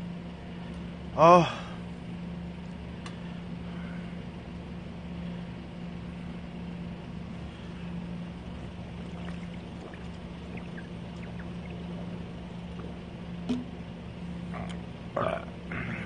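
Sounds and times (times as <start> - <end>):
low hum: 6.0 - 16.0
noisy background: 7.3 - 16.0
man gulping from plastic bottle: 9.0 - 13.7, 14.5 - 15.9.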